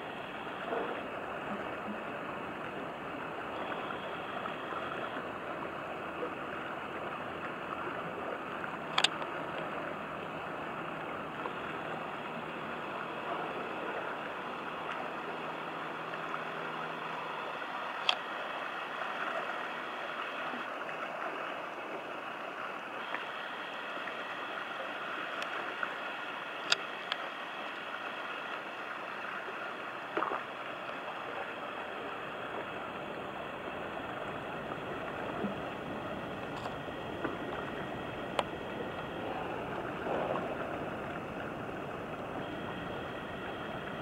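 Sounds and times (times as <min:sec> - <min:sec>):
barge engine hum: 0:00.0 - 0:44.0
river water rushing and lapping: 0:00.0 - 0:44.0.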